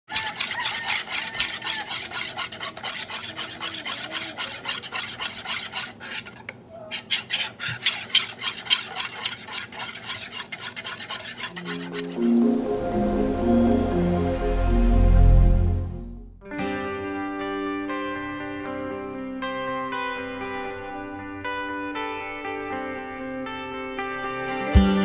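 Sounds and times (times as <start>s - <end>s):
whisk beating batter in bowl: 0.1s - 12.2s.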